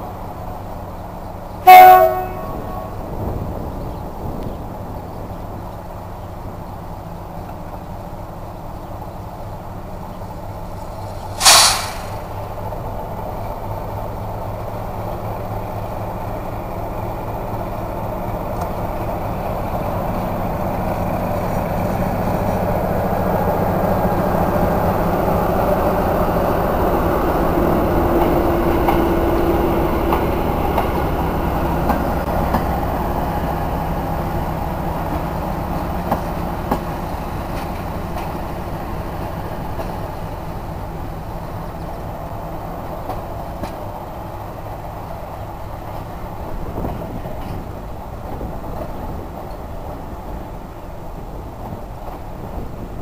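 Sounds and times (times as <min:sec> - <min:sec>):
diesel locomotive engine running: 0:00.0 - 0:53.0
short sharp horn blast: 0:01.6 - 0:03.0.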